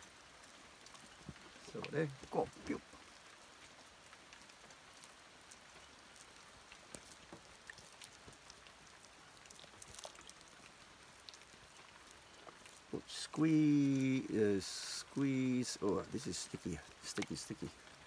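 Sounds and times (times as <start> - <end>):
small ticks and drips: 0.0 - 18.0
faint hiss: 11.6 - 18.0.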